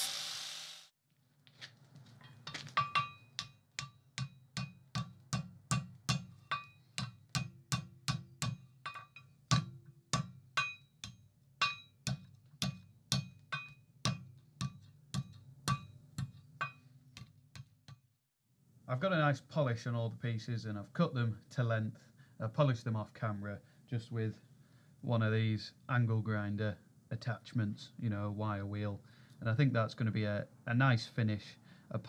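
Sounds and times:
hammer striking steel on anvil: 2.7s - 16.9s.

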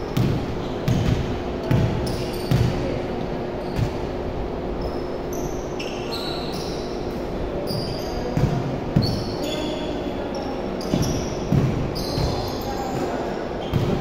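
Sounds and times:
sneakers squeaking on court: 0.0s - 3.0s, 3.6s - 4.1s, 4.8s - 14.0s
basketball bouncing on wooden floor: 0.2s - 2.8s, 8.4s - 9.2s.

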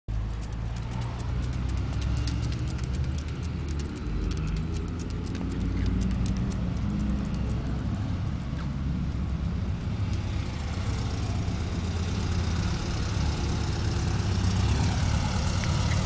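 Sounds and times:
dog claws clicking on concrete: 0.1s - 7.8s.

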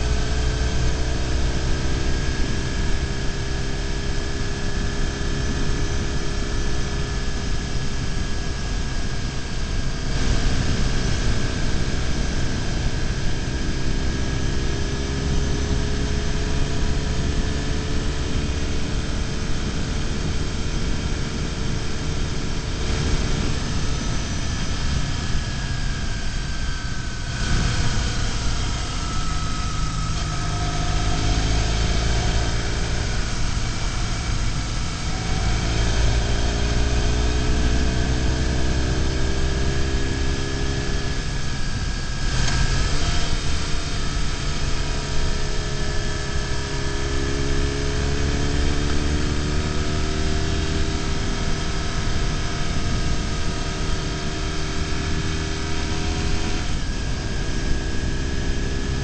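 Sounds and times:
wind rush on microphone: 0.0s - 50.0s
motorcycle engine running: 0.0s - 59.0s.

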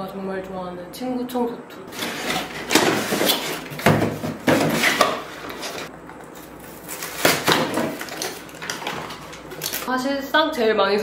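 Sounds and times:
cardboard scraping and knocking: 1.9s - 5.9s.

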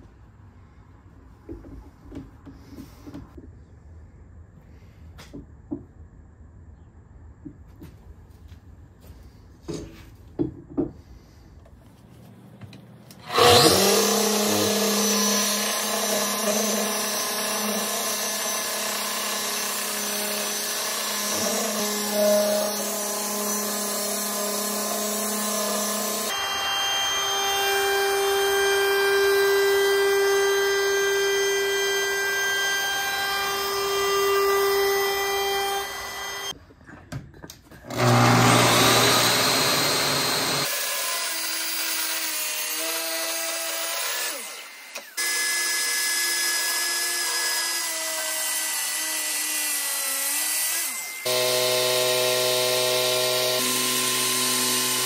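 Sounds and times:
power tool starting: 13.2s - 36.6s, 37.8s - 49.3s, 50.2s - 55.0s
orbital sander on wood: 13.3s - 36.5s, 37.9s - 55.0s.

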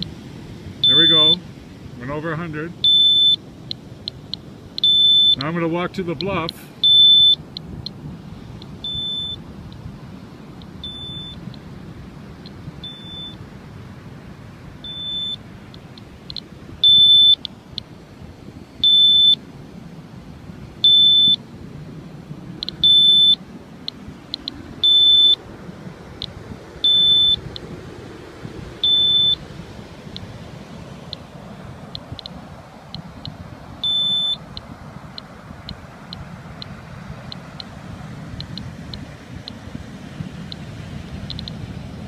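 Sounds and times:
detector alarm beeping: 0.8s - 1.4s, 2.8s - 3.4s, 4.0s - 5.5s, 6.2s - 7.4s, 8.8s - 9.4s, 10.7s - 11.5s, 12.8s - 13.4s, 14.8s - 15.4s, 16.3s - 17.5s, 18.8s - 19.4s, 20.8s - 21.4s, 22.6s - 23.4s, 24.4s - 25.4s, 26.8s - 27.6s, 28.8s - 29.4s, 33.2s - 34.6s.

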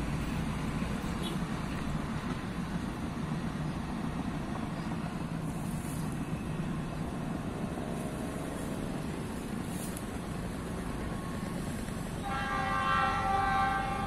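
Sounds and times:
train rumble: 0.0s - 14.0s
locomotive horn: 12.2s - 14.0s.

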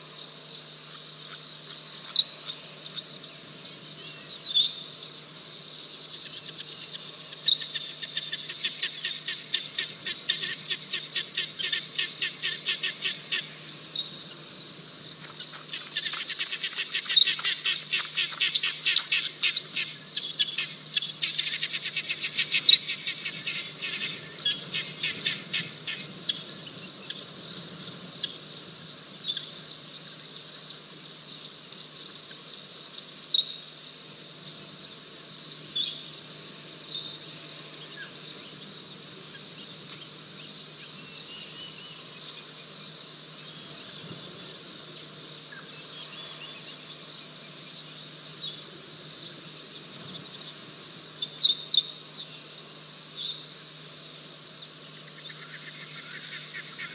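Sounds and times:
faint outdoor background: 0.0s - 56.9s
rapid high-pitched chirping: 0.2s - 14.2s, 15.3s - 28.3s.

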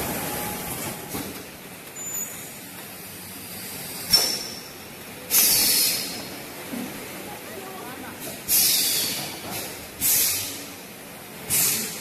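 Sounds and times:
packaging machine running: 0.0s - 2.4s
sharp pneumatic click: 4.1s - 4.7s, 5.3s - 6.2s, 8.5s - 10.7s, 11.5s - 12.0s
hissing air burst: 5.3s - 6.2s, 8.5s - 10.7s, 11.5s - 12.0s.

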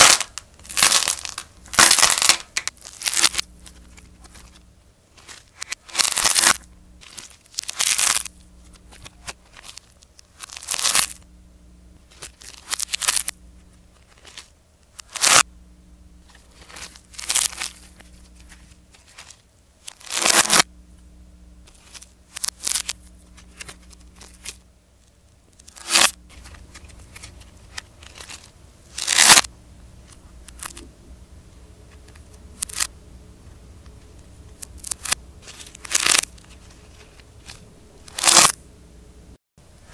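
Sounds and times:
dried clay crackling and tearing: 0.0s - 11.2s, 12.1s - 15.4s, 16.2s - 20.7s, 21.6s - 24.6s, 25.5s - 29.5s, 30.1s - 30.8s, 32.0s - 32.9s, 34.5s - 38.6s.

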